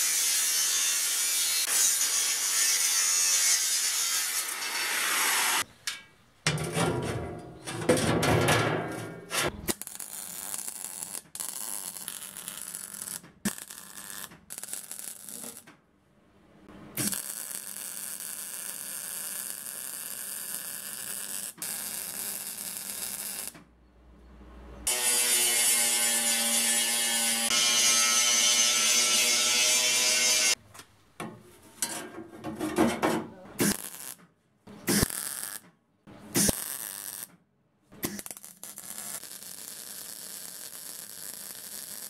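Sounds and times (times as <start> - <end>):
angle grinder cutting steel: 0.0 - 5.6, 24.9 - 30.6
metal handling noise: 5.8 - 9.7
welder crackling hiss: 38.0 - 42.0.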